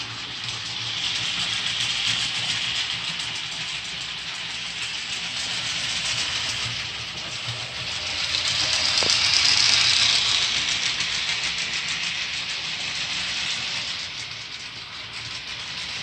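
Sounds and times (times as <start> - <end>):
model train running on track: 0.0 - 16.0.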